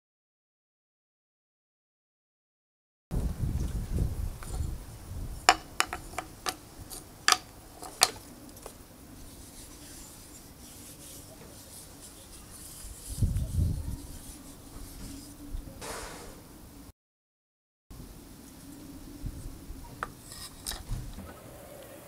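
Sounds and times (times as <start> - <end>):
wooden pieces clicking on tile: 5.5 - 8.2.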